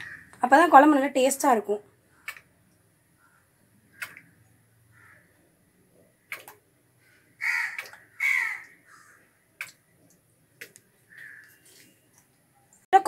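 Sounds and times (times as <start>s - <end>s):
crow cawing: 0.0s - 0.4s, 4.9s - 5.4s, 7.0s - 9.3s, 11.1s - 11.6s
sharp clicks: 2.2s - 2.5s, 3.9s - 4.3s, 6.3s - 6.6s.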